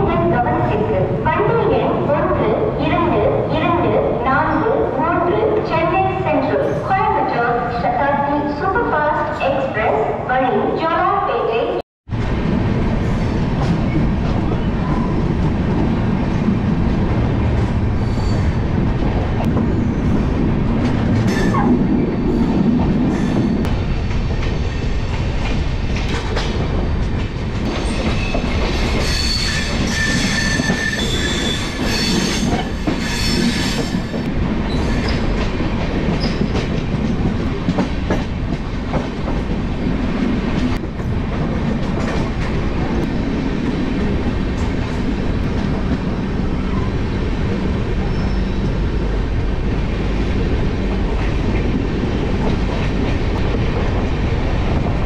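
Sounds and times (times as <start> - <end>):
train rumbling with wheel clatter: 12.1 - 55.0
high metallic wheel squeal: 29.0 - 34.0.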